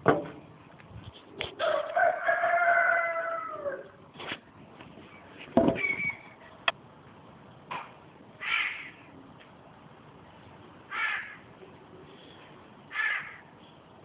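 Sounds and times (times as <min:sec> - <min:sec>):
short bird calls: 0:05.8 - 0:06.4.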